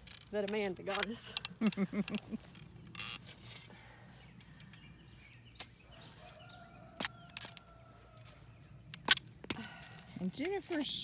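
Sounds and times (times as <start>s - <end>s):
rooster crowing: 5.9s - 8.4s.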